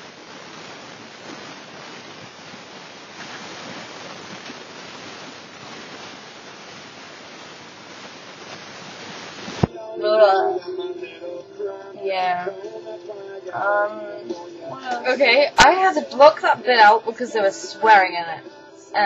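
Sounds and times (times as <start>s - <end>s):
static hiss: 0.0s - 19.0s.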